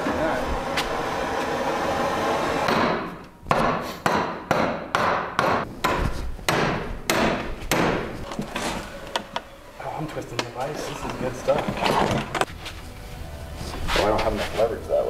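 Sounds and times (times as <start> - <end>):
gas torch hissing: 0.0 - 2.7
hammer beating hot metal: 2.3 - 8.2.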